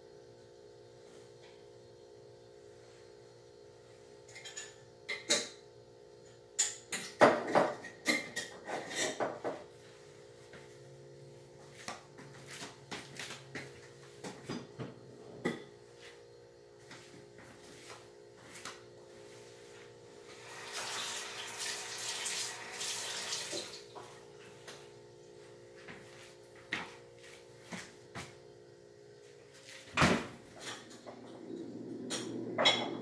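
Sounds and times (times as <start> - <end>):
faint steady hum: 0.0 - 33.0
dishes and utensils clattering: 4.3 - 5.6, 6.6 - 9.6, 32.0 - 33.0.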